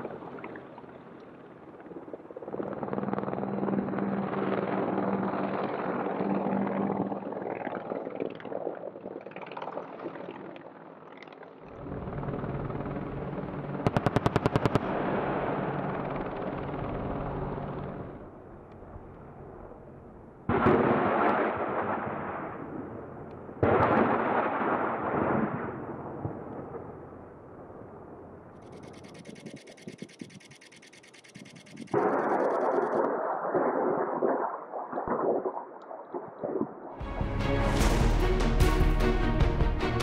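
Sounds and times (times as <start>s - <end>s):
helicopter running: 0.0s - 8.4s, 10.4s - 18.4s, 28.6s - 33.0s
rapid cannon shots: 13.8s - 15.8s, 20.5s - 22.8s, 23.6s - 26.4s, 28.7s - 34.2s.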